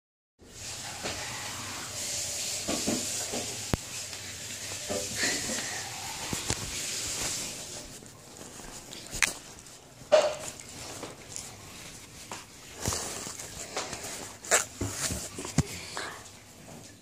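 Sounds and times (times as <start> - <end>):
steady hiss: 0.4 - 10.0.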